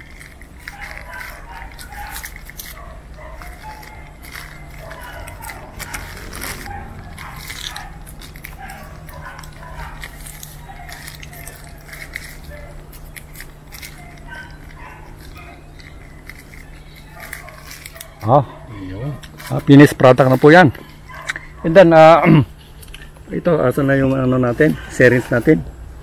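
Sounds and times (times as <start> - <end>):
plastic sheet crinkling: 0.0 - 18.6
steady low hum: 0.0 - 26.0.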